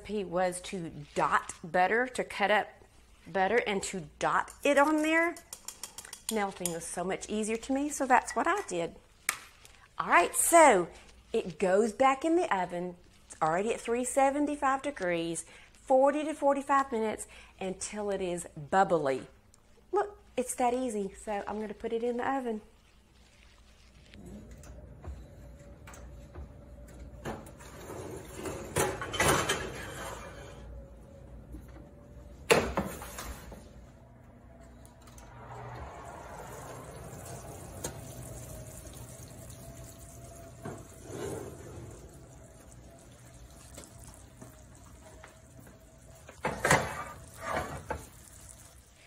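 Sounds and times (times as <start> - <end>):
glass dish scraping on oven rack: 27.6 - 30.7, 40.6 - 42.1, 46.4 - 48.1.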